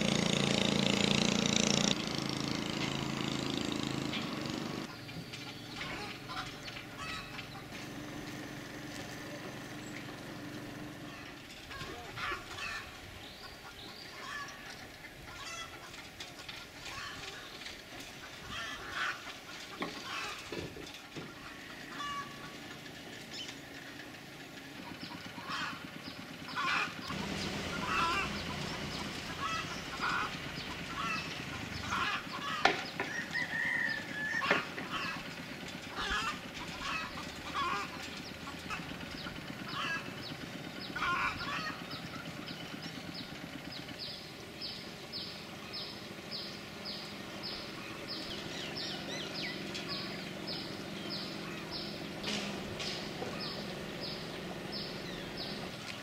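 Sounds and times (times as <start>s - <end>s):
chickens clucking: 4.0s - 56.0s.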